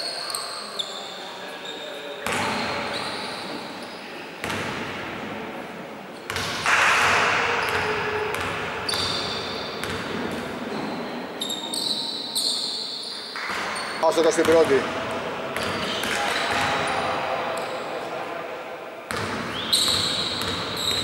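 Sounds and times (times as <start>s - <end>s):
basketball bouncing on gym floor: 6.3s - 10.4s, 19.1s - 21.0s
players' voices: 13.4s - 19.6s.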